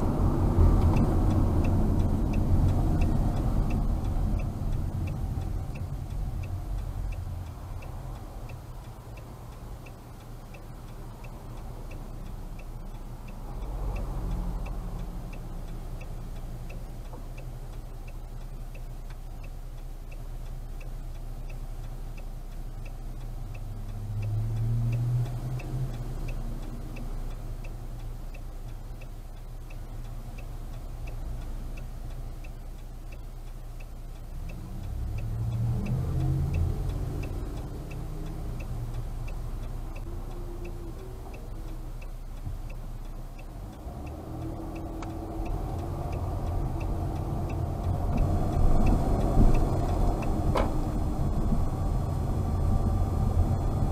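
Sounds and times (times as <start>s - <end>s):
vehicle passing: 0.0s - 17.0s, 23.6s - 27.6s, 34.4s - 53.9s
car engine idling: 0.0s - 24.1s, 25.9s - 53.9s
turn signal clicking: 0.0s - 53.9s
tyres on road: 0.0s - 53.9s.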